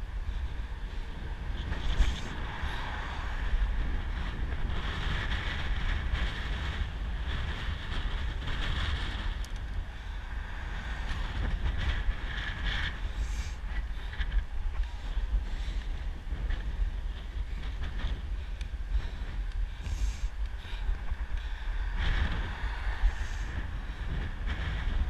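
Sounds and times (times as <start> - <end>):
tyres rumbling on asphalt: 0.0 - 25.0
wind rushing over microphone: 0.0 - 25.0.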